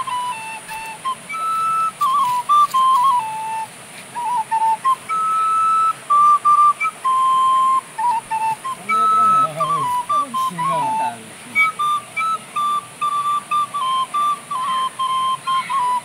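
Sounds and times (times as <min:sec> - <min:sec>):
recorder playing a melody: 0:00.0 - 0:16.0
person talking: 0:08.8 - 0:11.6.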